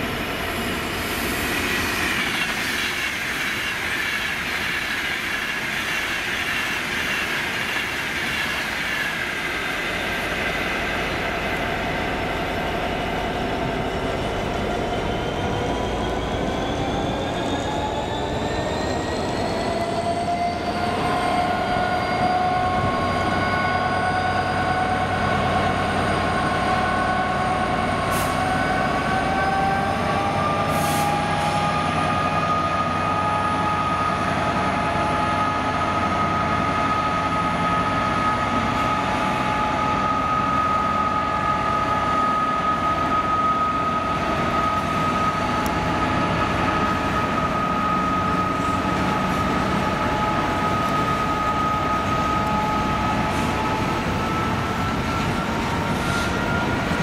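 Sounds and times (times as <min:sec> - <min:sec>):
train motor whine rising: 0:00.0 - 0:57.0
train running rumble: 0:00.0 - 0:57.0.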